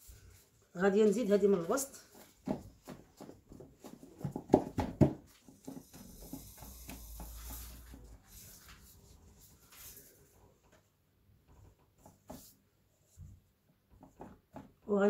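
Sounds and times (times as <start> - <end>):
hands patting and tapping: 1.6 - 8.0
pastry sheets rustling: 5.2 - 11.0.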